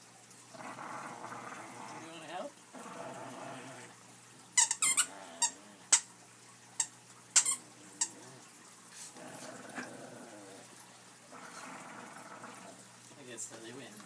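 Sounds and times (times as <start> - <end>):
dogs grumbling: 0.5 - 4.0, 4.8 - 6.0, 7.5 - 13.1.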